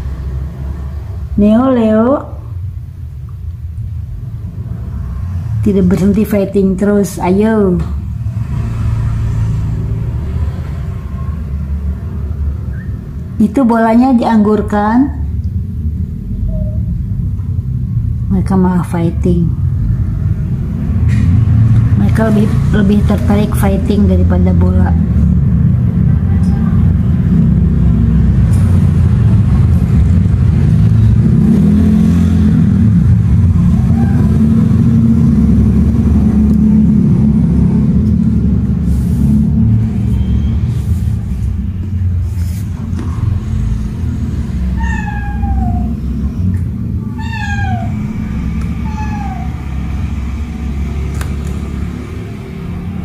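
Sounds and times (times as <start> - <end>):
loud low rumble: 4.0 - 53.0
kitten meowing: 44.8 - 46.1, 47.1 - 48.2, 48.8 - 49.9.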